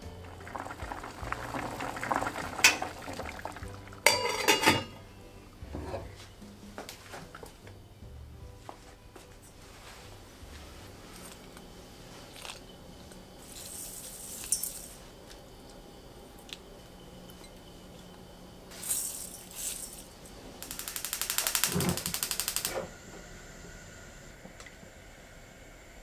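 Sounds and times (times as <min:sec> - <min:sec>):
gas hob igniter clicking: 0:20.6 - 0:23.0.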